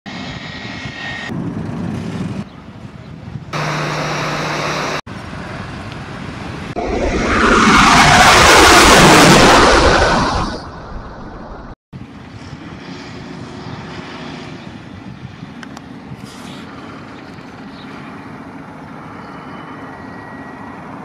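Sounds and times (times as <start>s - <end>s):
jet passing overhead: 0.1s - 2.5s, 3.5s - 17.2s
jet airliner engine noise: 0.1s - 21.0s.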